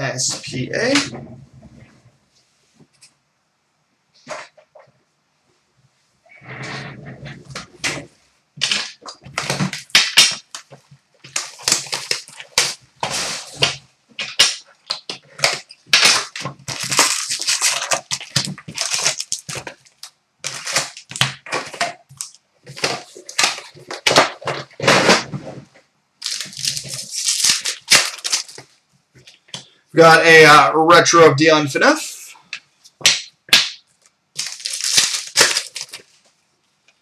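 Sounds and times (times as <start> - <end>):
foil wrappers crinkling: 8.6 - 24.8, 26.2 - 28.7, 33.8 - 36.2.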